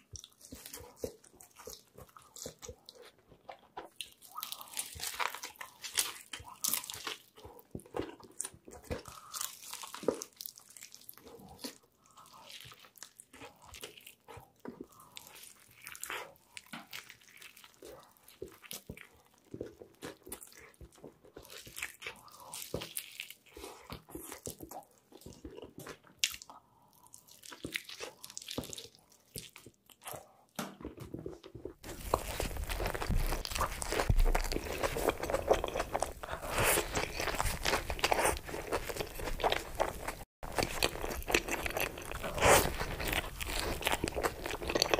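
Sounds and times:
chewing with crackling crunches: 0:00.0 - 0:44.9
crunchy bite into sandwich: 0:31.8 - 0:44.9.

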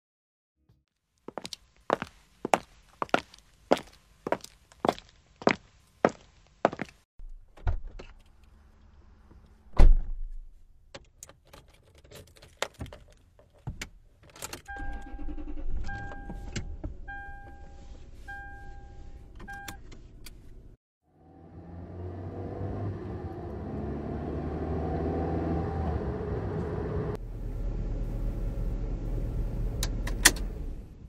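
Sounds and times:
heeled footstep: 0:01.3 - 0:07.0
car warning chime beeping: 0:14.7 - 0:19.8.

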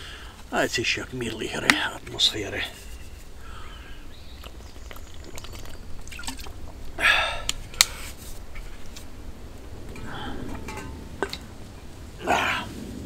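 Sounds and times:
pine cones crackling in stove: 0:00.0 - 0:13.0
man drinking and swallowing: 0:04.0 - 0:08.9.

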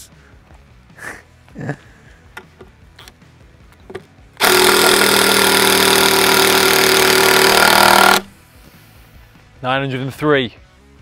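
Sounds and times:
impact driver hammering screw: 0:04.4 - 0:08.3.

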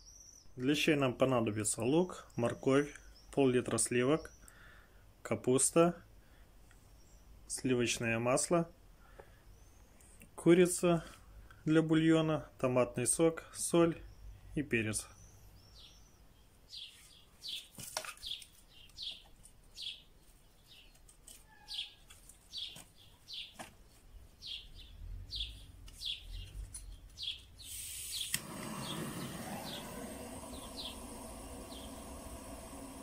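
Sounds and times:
songbird chirping: 0:00.0 - 0:04.8, 0:13.7 - 0:33.0
steady hiss: 0:27.6 - 0:33.0.

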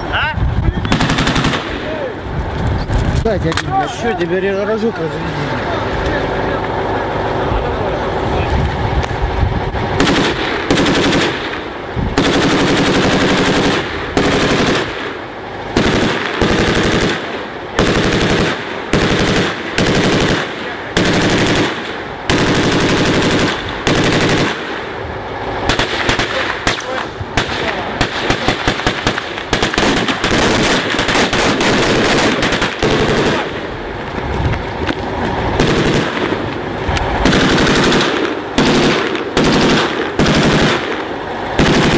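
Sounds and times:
machine-gun fire: 0:00.9 - 0:02.1, 0:10.0 - 0:25.0, 0:25.6 - 0:33.9, 0:35.6 - 0:36.5, 0:37.1 - 0:41.9.

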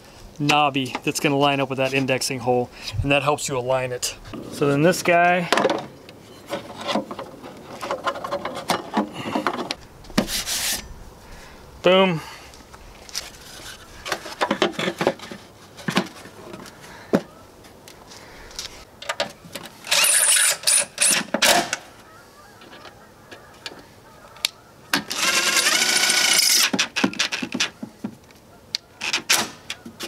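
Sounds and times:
cordless power driver whirring: 0:25.1 - 0:26.7.

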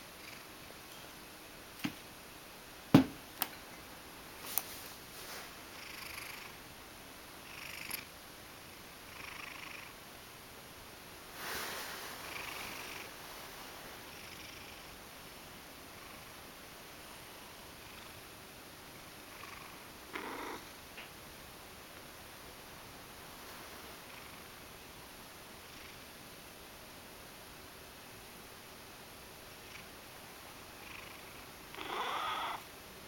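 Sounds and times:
cat purring: 0:05.2 - 0:06.6, 0:07.4 - 0:08.1, 0:08.7 - 0:10.0, 0:11.4 - 0:15.0, 0:17.0 - 0:18.2, 0:19.0 - 0:20.8, 0:23.3 - 0:24.6, 0:30.6 - 0:32.7.

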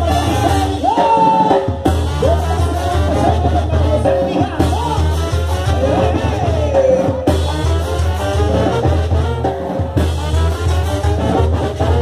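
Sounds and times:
brass band playing: 0:00.0 - 0:12.0.

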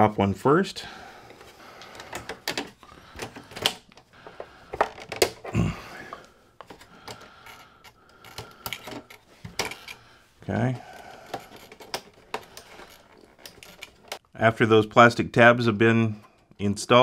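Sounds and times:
hard plastic clicks and knocks: 0:02.0 - 0:05.4.

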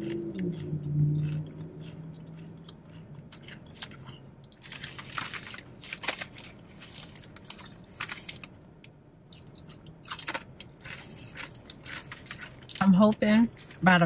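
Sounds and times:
potato chips crunching while chewed: 0:00.0 - 0:08.6, 0:09.2 - 0:13.9.

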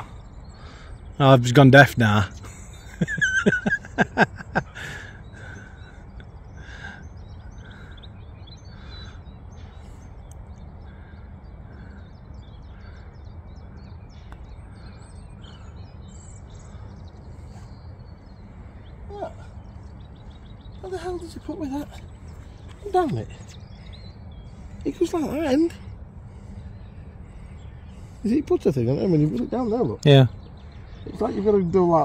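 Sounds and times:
birds calling and chirping: 0:00.0 - 0:32.0
low outdoor rumble: 0:00.0 - 0:32.0.

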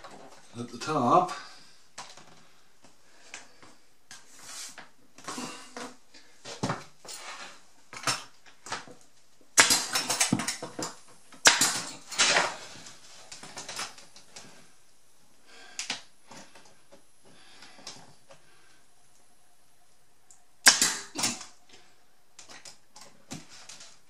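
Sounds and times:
knocks and rustling of handling: 0:02.0 - 0:14.7, 0:21.6 - 0:24.0
nail gun firing: 0:09.6 - 0:10.6, 0:11.4 - 0:12.6, 0:20.6 - 0:21.5.

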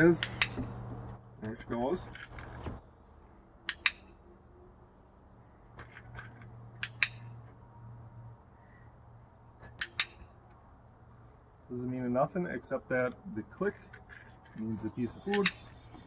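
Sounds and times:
dog-training clicker clicking: 0:00.2 - 0:00.6, 0:03.7 - 0:04.1, 0:06.8 - 0:07.2, 0:09.7 - 0:10.2, 0:15.3 - 0:15.7.

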